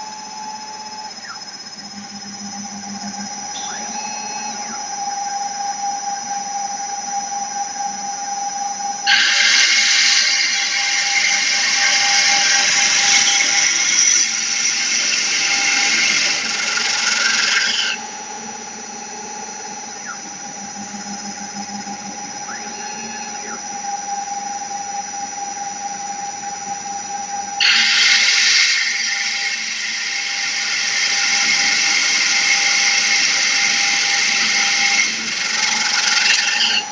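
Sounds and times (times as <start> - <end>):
spindle motor whine: 0.0 - 36.9
drill bit grinding stone squeal: 9.0 - 18.9, 27.6 - 36.9.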